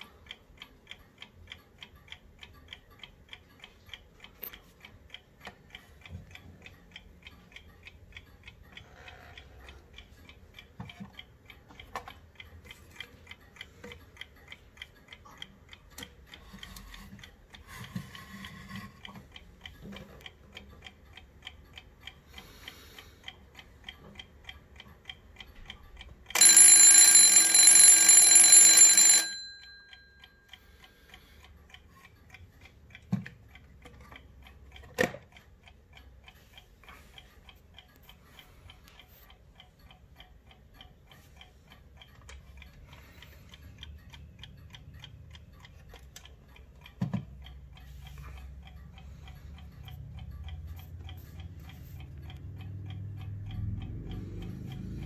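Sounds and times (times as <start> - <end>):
alarm clock ticking: 0.0 - 55.0
alarm bell ringing: 26.4 - 30.4.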